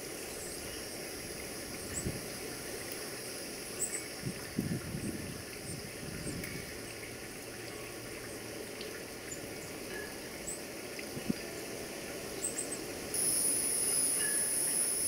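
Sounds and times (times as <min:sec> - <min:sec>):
outdoor background hiss: 0:00.0 - 0:15.0
steady high-pitched buzz: 0:13.1 - 0:15.0
short high chirps: 0:13.2 - 0:15.0.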